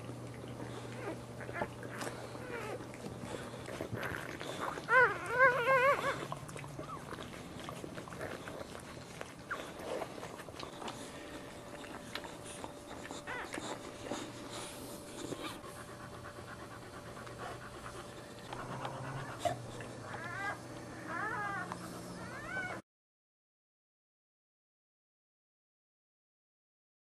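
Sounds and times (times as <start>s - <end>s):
dog panting heavily: 0.6s - 22.7s
puppies squeaking: 0.9s - 15.7s, 18.0s - 22.8s.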